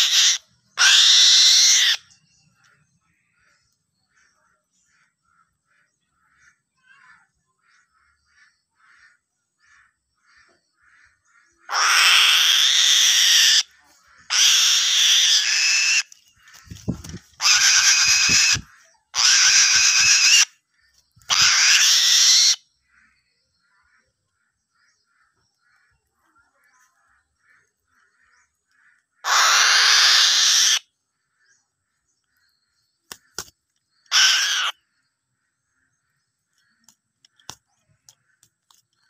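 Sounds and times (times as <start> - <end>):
bird of prey screaming: 0.0 - 2.1, 11.7 - 16.1, 17.4 - 20.6, 21.3 - 22.6, 29.2 - 30.9, 34.1 - 34.8
soft bird calls: 0.0 - 39.0.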